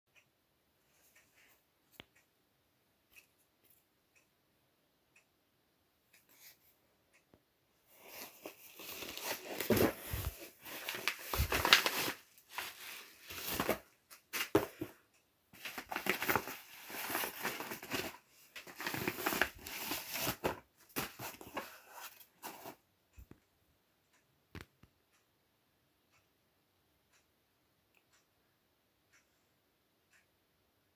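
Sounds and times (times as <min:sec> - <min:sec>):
paper envelope crinkling: 0:08.1 - 0:13.8, 0:15.6 - 0:21.8.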